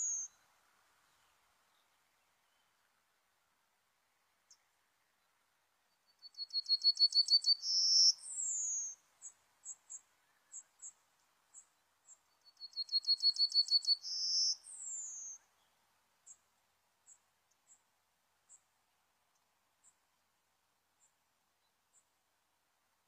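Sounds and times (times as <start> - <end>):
bird singing: 0.0 - 0.4, 5.9 - 16.4.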